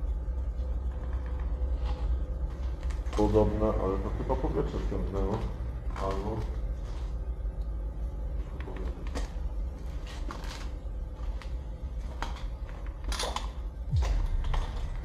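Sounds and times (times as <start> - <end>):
low rumble: 13.6 - 15.0.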